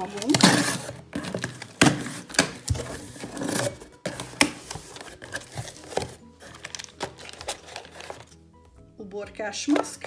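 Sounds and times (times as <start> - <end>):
knife cutting packing tape: 0.2 - 8.2
plastic sachets crinkling: 4.1 - 8.3.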